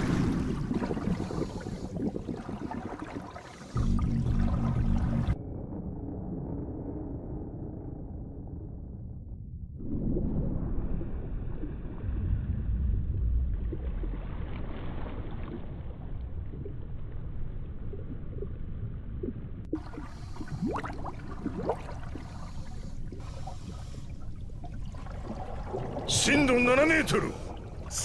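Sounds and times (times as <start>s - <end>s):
bubbles gurgling: 0.0s - 5.4s, 17.6s - 28.0s
muffled underwater rumble: 0.0s - 28.0s.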